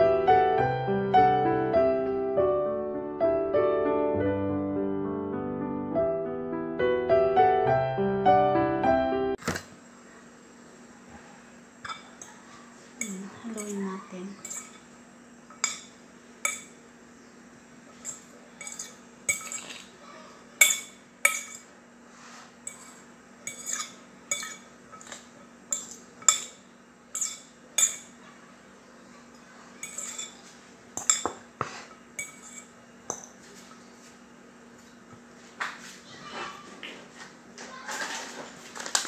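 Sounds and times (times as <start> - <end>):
fork clinking against glass bowl: 13.0 - 14.9, 15.5 - 16.8, 18.0 - 19.9, 20.6 - 21.7, 22.6 - 28.2, 29.8 - 30.4, 32.2 - 33.3.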